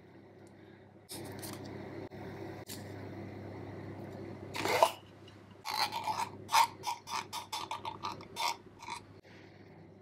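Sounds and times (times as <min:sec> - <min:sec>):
knife scraping glass jar: 0:05.7 - 0:09.1.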